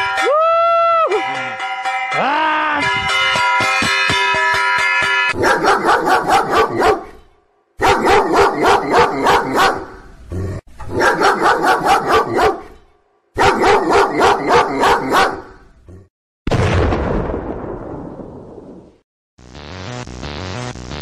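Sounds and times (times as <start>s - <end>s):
recorded dog barking through loudspeaker: 5.4s - 7.1s, 7.8s - 9.9s, 10.9s - 12.7s, 13.4s - 15.5s.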